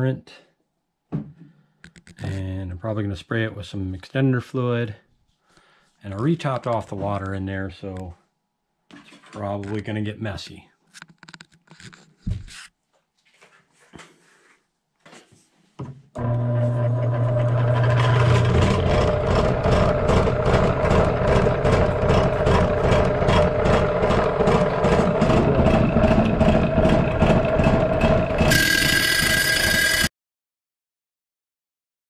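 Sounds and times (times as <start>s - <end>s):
saw motor hum and pulsing: 16.2s - 30.1s.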